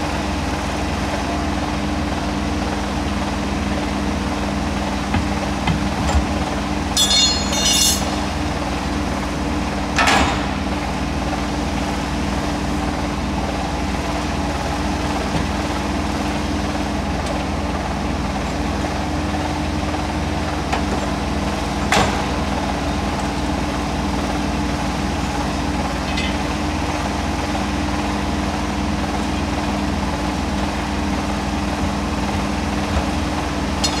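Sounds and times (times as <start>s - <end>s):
tyre changer mechanical hum: 0.0s - 34.0s
sharp metallic knocks: 7.0s - 8.3s.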